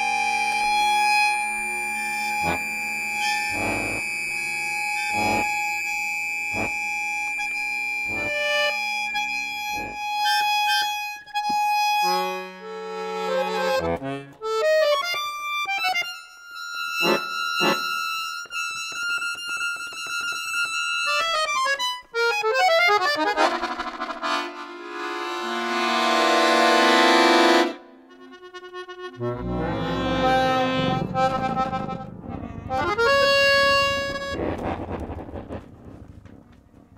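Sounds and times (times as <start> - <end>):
button accordion playing: 0.0 - 34.5
electronic tape music: 1.3 - 5.8, 29.2 - 36.2.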